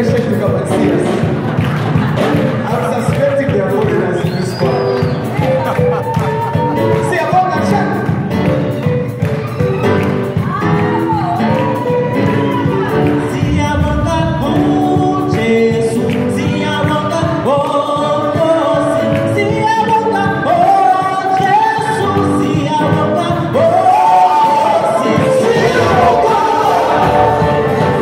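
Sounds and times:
group singing gospel song: 0:11.6 - 0:28.0.

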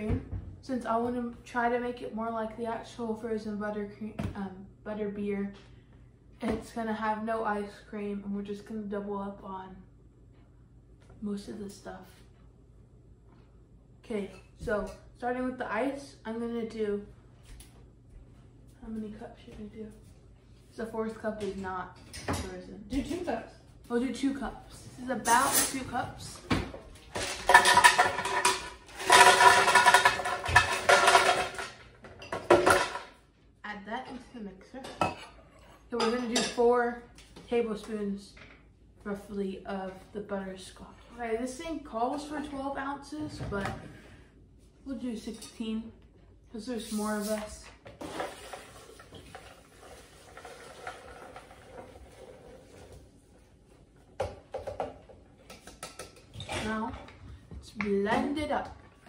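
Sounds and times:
ice cubes clattering into blender: 0:27.2 - 0:31.8
liquid pouring over ice: 0:48.0 - 0:52.6.

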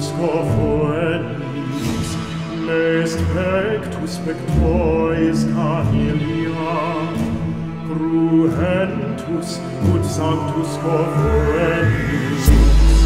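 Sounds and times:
operatic male singing: 0:00.0 - 0:13.0
sustained low notes: 0:10.5 - 0:13.0.

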